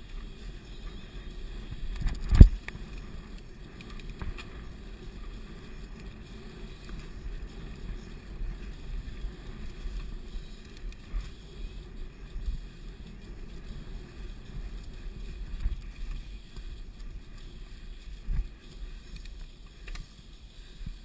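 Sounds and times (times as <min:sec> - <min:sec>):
bike tyres rumbling on dirt: 0:00.0 - 0:21.0
small clicks: 0:01.9 - 0:04.6, 0:19.0 - 0:20.2.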